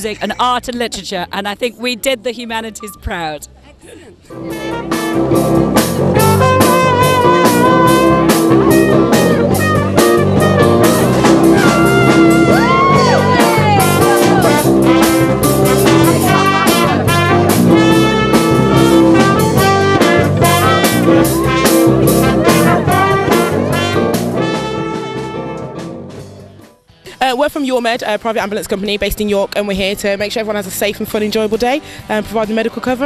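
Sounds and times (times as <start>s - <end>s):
jazz band playing upbeat tune: 4.3s - 26.6s.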